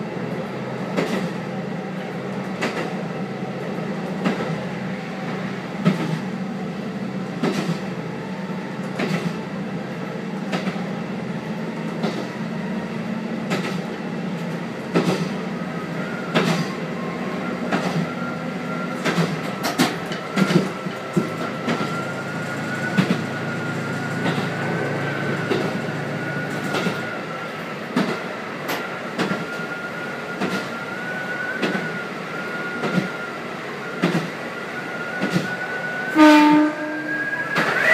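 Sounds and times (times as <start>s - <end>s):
railcar engine droning: 0.0s - 37.9s
wheels clicking over rail joints: 19.0s - 22.0s.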